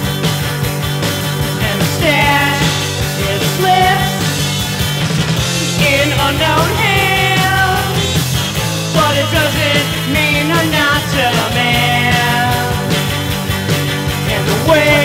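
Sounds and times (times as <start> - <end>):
rock band music: 0.0 - 15.0
sliding melodic lead line: 0.1 - 15.0.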